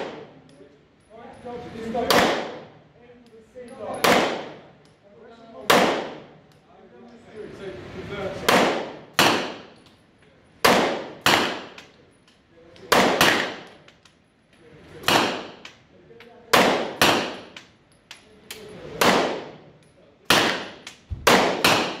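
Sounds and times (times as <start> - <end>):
pistol shots cracking: 0.0 - 0.4, 2.0 - 2.8, 4.0 - 4.7, 5.6 - 6.4, 8.5 - 9.8, 10.6 - 11.9, 12.9 - 13.9, 15.0 - 15.8, 16.5 - 17.7, 19.0 - 19.7, 20.3 - 22.0.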